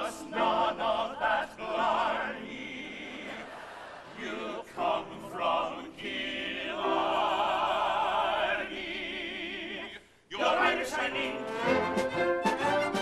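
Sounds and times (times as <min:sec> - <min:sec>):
voices singing in harmony: 0:00.0 - 0:13.0
orchestra playing: 0:11.1 - 0:13.0.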